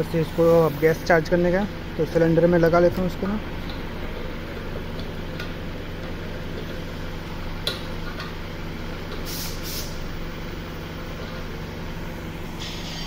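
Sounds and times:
low machine hum: 0.0s - 13.0s
short hisses: 9.3s - 10.0s.

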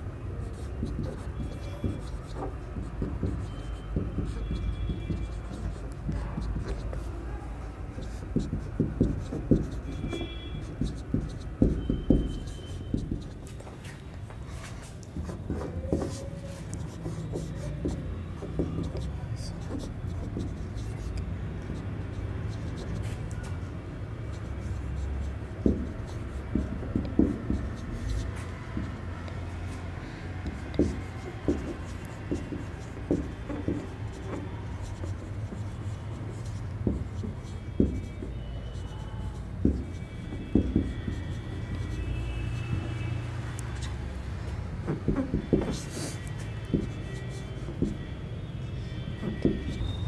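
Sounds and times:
marker writing on whiteboard: 0.0s - 50.0s.

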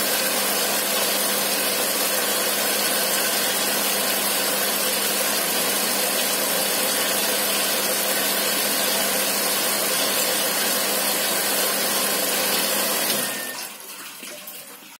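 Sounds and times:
small electric pump humming: 0.0s - 13.8s
water jets hissing: 0.0s - 13.9s
water trickling: 13.3s - 15.0s.

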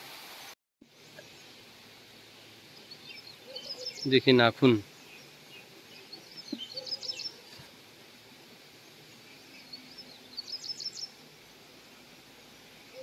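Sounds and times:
faint outdoor background noise: 0.0s - 13.0s
songbird chirping: 2.6s - 7.7s, 8.7s - 11.2s.

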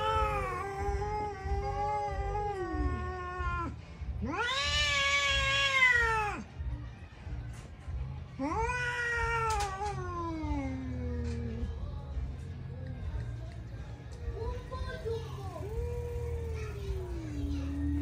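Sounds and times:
cats yowling: 0.0s - 6.5s, 8.4s - 11.8s.

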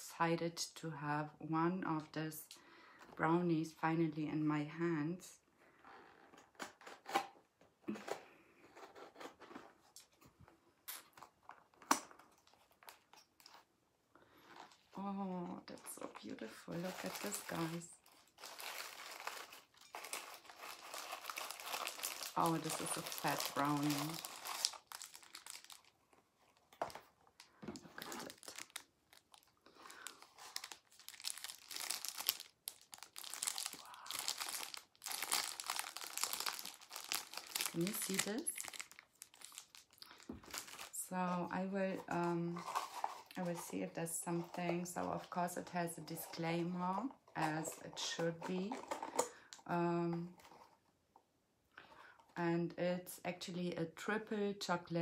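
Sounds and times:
plastic wrapping crinkling: 11.0s - 13.7s, 14.5s - 49.6s
cardboard box rustling: 41.9s - 43.7s.

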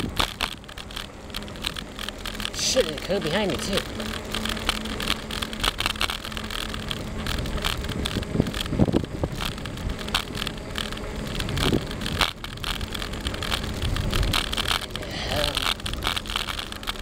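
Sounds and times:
bicycle tyres on rough asphalt: 0.0s - 17.0s
bike rattling and clicking: 0.0s - 17.0s
wind on microphone: 4.9s - 16.2s.

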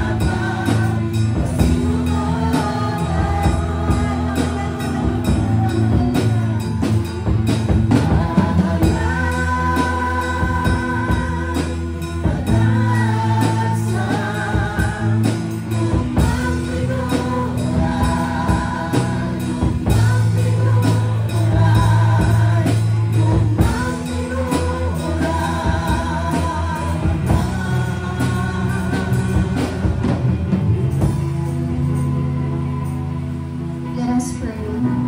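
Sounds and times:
woman singing: 0.0s - 30.4s, 33.9s - 35.0s
drum kit beat: 0.0s - 33.2s
bass guitar: 0.0s - 35.0s
electric guitar: 0.0s - 35.0s
keyboard: 0.0s - 35.0s.

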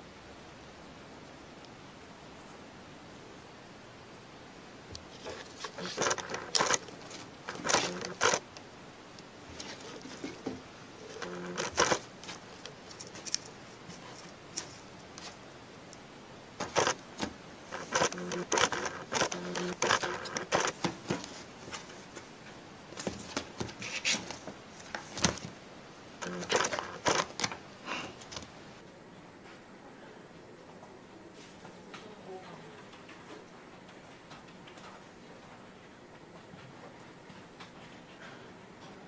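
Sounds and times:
claws tapping and scraping: 5.0s - 15.4s, 16.6s - 25.6s, 26.2s - 28.6s.

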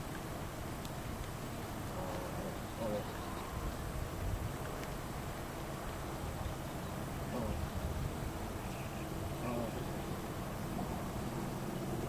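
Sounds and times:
wind buffeting microphone: 1.8s - 10.0s.

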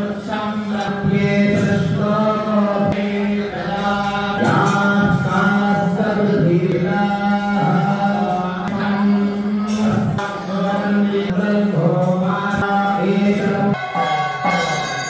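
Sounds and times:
mantra chanting: 0.0s - 15.0s
low drone note: 13.8s - 15.0s.

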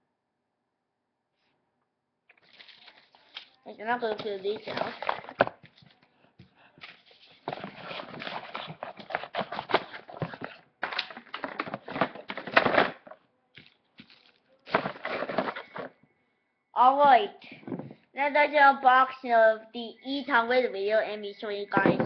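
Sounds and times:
packaging rustling and crinkling: 2.3s - 6.0s, 6.8s - 15.9s.

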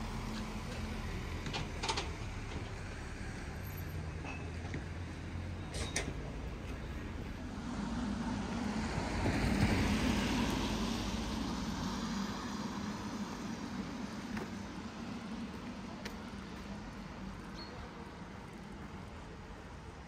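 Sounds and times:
vehicle passing by: 7.1s - 14.1s.

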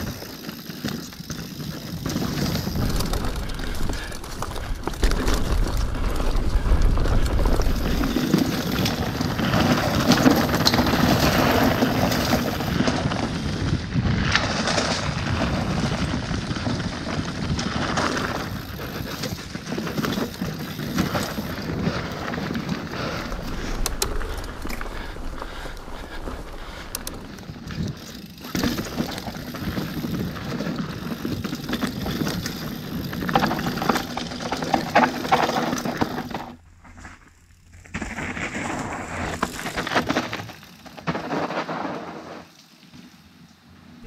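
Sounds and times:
bike chain and frame rattling: 0.0s - 42.1s
bike tyres crunching over dirt: 0.0s - 44.0s
wind buffeting microphone: 2.0s - 9.9s, 12.3s - 28.4s.

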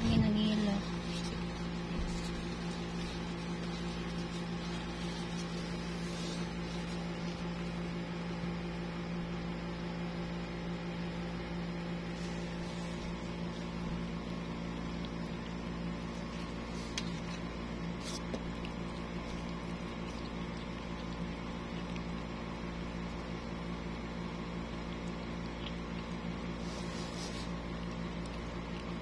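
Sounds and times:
machine hum: 0.0s - 29.0s.

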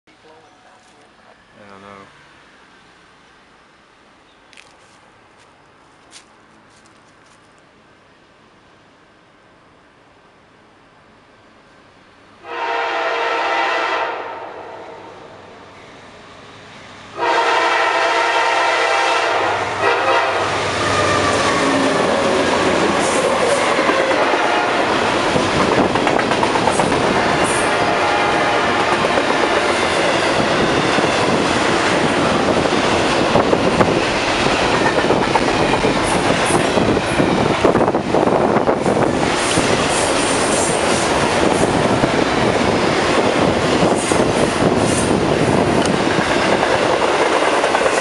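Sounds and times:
locomotive air horn: 12.4s - 15.1s, 17.2s - 22.0s, 23.1s - 24.9s, 27.5s - 28.8s
train wheels on rails: 15.7s - 48.0s
clickety-clack of rail joints: 21.7s - 27.9s, 28.6s - 37.6s, 42.5s - 48.0s.

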